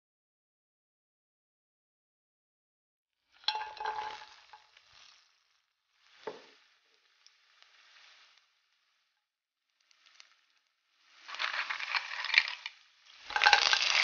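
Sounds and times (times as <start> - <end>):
garlic sizzling in oil: 3.3 - 9.0, 9.8 - 14.0.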